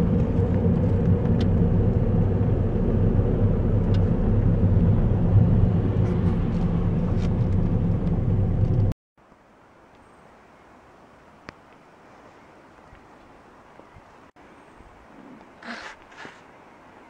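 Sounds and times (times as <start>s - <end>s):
car engine and tyre rumble: 0.0s - 10.0s.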